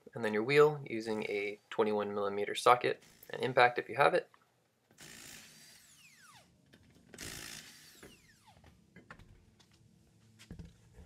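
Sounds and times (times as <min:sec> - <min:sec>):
impact wrench whirring: 0:03.0 - 0:03.4, 0:05.0 - 0:08.7.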